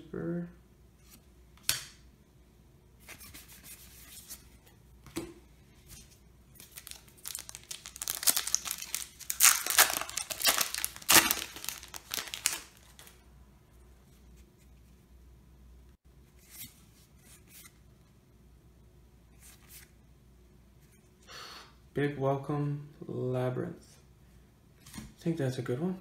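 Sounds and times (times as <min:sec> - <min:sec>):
foil wrapper ripping and crinkling: 0:06.6 - 0:13.2.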